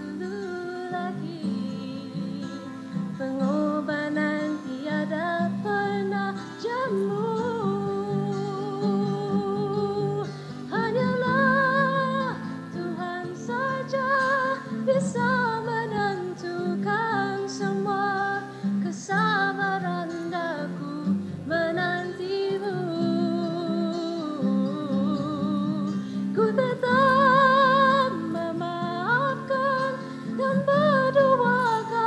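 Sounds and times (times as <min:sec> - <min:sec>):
person singing with vibrato: 0:00.0 - 0:32.0.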